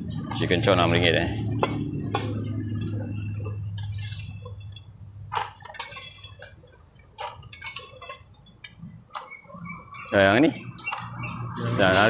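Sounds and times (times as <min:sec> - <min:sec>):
low steady hum: 0:00.0 - 0:10.8
plastic rustling: 0:01.6 - 0:10.3.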